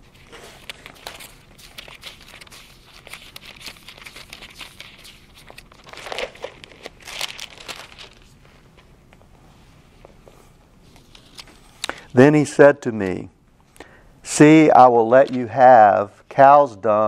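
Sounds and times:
thin pages rustling: 0.0 - 8.9, 10.9 - 11.9.

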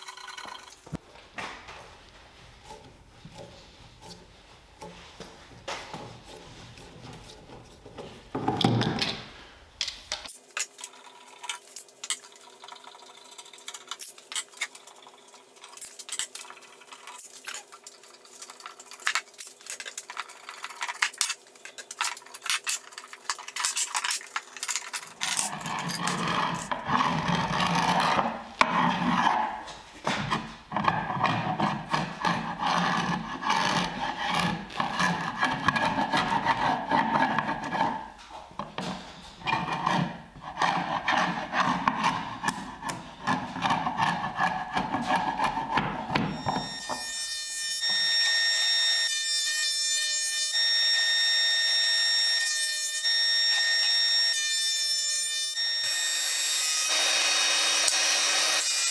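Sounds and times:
chisel scraping glue off wood: 39.4 - 46.3.

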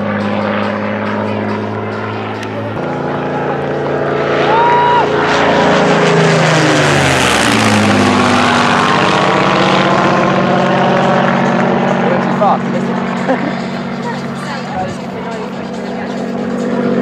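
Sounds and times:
propeller plane engine passing overhead: 0.0 - 17.0.

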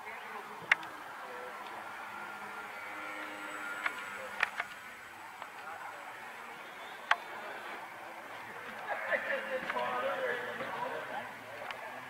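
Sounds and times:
buzz of small electric motors: 0.0 - 7.4
sharp clicks: 3.8 - 4.8.

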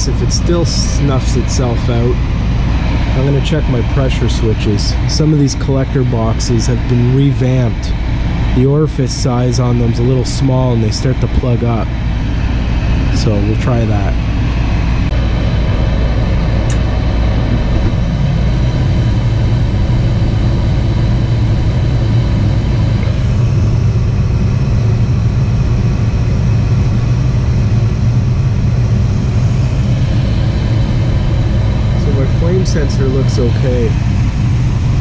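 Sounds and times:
gas furnace droning: 0.0 - 35.0.

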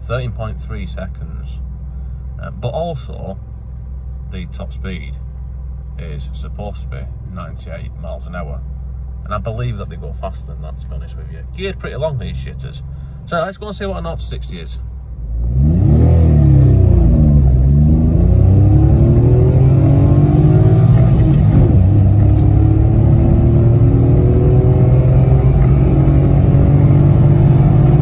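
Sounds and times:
car engine accelerating hard: 15.2 - 28.0.

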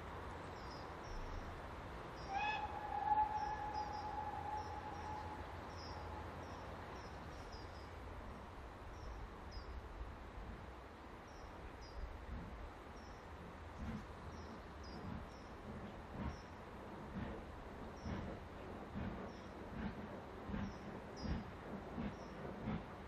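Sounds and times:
steam locomotive whistle: 2.3 - 6.4
locomotive exhaust beats: 13.7 - 23.0.

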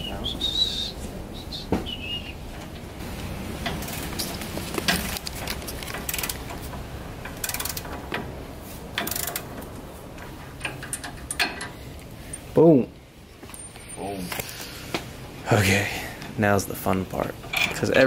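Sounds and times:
ratchet wrench clicking: 5.8 - 6.6, 7.2 - 8.0, 9.0 - 9.5.

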